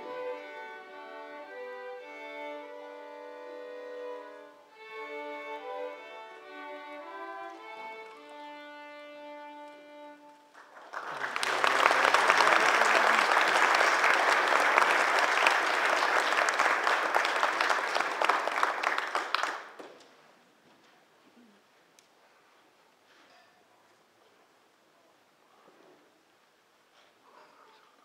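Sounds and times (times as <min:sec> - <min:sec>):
string orchestra playing: 0:00.0 - 0:10.5
audience applauding: 0:10.5 - 0:20.0.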